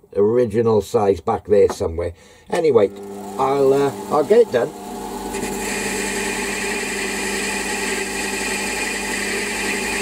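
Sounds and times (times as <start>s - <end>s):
metal lathe whine: 2.9s - 10.0s.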